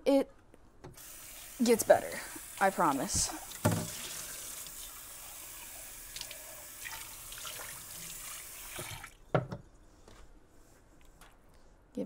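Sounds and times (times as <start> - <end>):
water running from faucet: 1.0 - 9.2.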